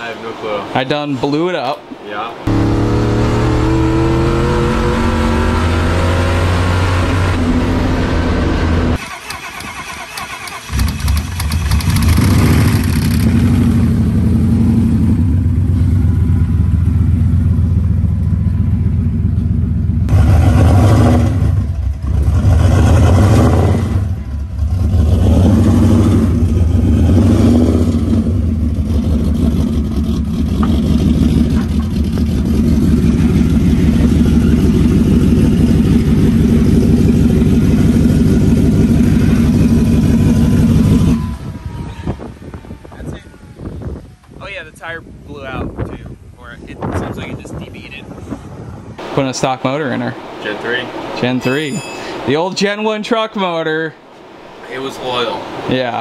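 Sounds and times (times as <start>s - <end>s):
car engine accelerating: 2.5s - 9.7s, 10.5s - 44.2s.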